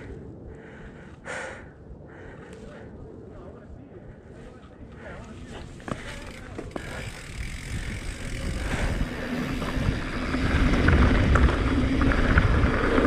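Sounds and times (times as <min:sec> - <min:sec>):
wind buffeting microphone: 0:00.0 - 0:13.0
bike tyres rolling over gravel: 0:05.0 - 0:13.0.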